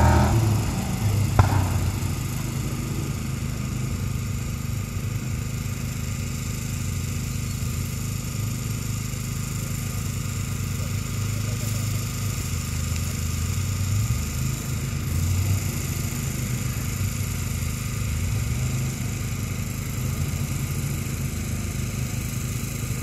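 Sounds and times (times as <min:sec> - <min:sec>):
off-road vehicle engine revving: 0:00.0 - 0:23.0.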